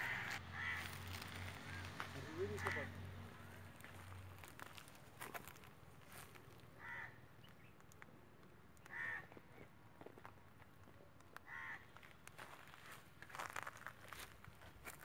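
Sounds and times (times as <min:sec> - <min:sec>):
crow cawing: 0:00.0 - 0:04.0, 0:06.8 - 0:07.3, 0:08.8 - 0:09.4, 0:11.4 - 0:12.1.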